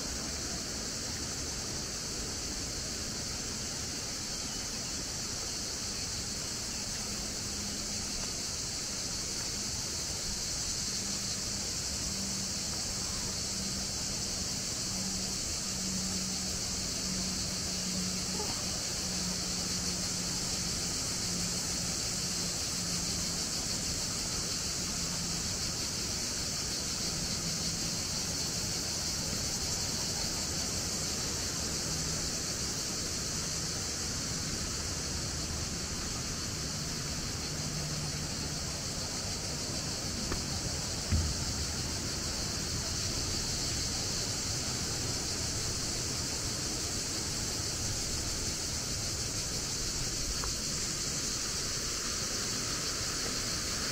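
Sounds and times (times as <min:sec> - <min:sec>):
cicadas chorus: 0:00.0 - 0:53.9
flowing water: 0:00.0 - 0:53.9
short thump: 0:41.1 - 0:41.7.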